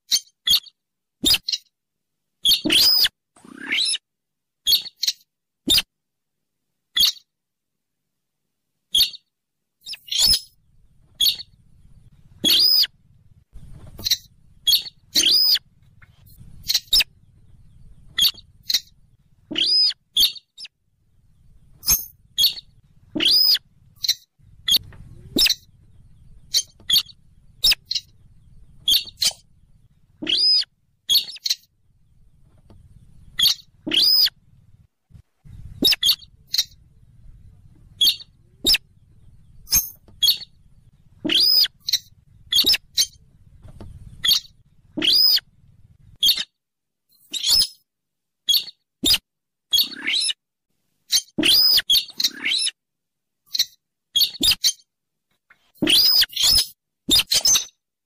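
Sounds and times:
bird calls squeaky notes: 0.1s - 1.7s, 2.4s - 4.0s, 4.7s - 5.9s, 7.0s - 7.3s, 8.9s - 10.6s, 11.2s - 11.5s, 12.4s - 12.9s, 13.8s - 17.3s, 17.9s - 20.7s, 21.8s - 29.6s, 30.2s - 31.7s, 33.2s - 34.4s, 35.5s - 36.8s, 37.9s - 38.8s, 39.4s - 40.6s, 41.2s - 43.2s, 44.0s - 45.5s, 46.2s - 46.6s, 47.2s - 47.8s, 48.5s - 50.4s, 51.1s - 52.8s, 53.5s - 54.8s, 55.8s - 57.8s.

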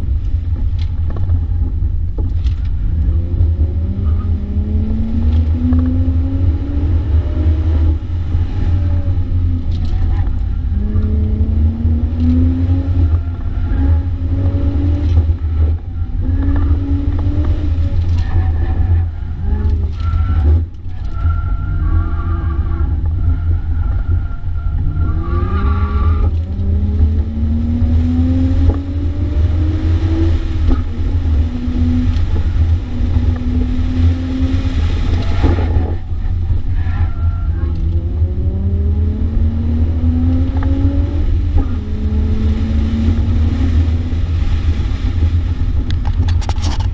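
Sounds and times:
car engine revving: 0.0s - 46.9s
low road rumble: 0.0s - 46.9s
tyre squeal: 17.8s - 26.3s, 35.0s - 37.9s.

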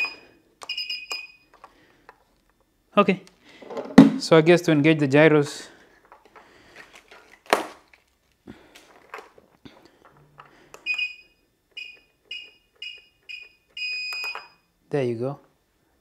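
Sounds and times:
short high beeps: 0.0s - 1.4s
sharp knock: 3.9s - 4.2s.

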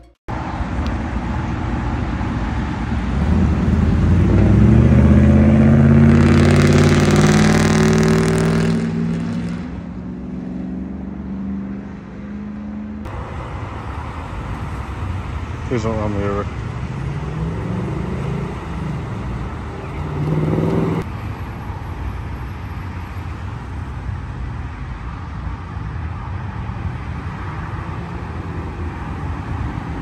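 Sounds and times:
car accelerating past: 2.5s - 13.1s, 16.8s - 21.1s.

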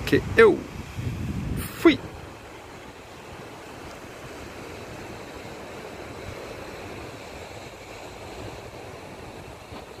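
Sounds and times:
wind rushing: 0.0s - 2.4s
distant surf: 0.0s - 10.0s
wind buffeting microphone: 0.0s - 10.0s.

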